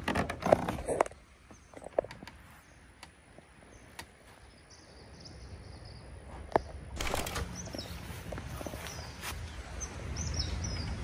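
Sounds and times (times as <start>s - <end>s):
rustling noise: 6.3s - 9.6s.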